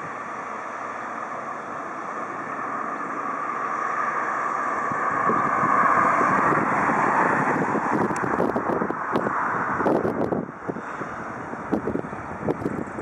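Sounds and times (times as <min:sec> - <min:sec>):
jet engines taxiing: 0:00.0 - 0:13.0
wind buffeting microphone: 0:04.7 - 0:13.0.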